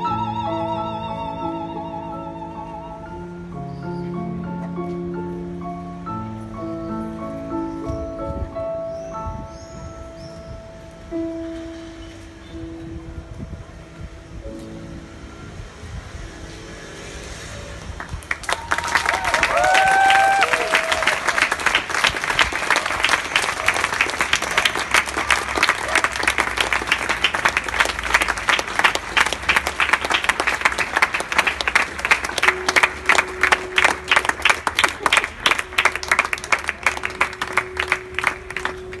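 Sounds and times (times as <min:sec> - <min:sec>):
crowd clapping: 0:18.0 - 0:39.0.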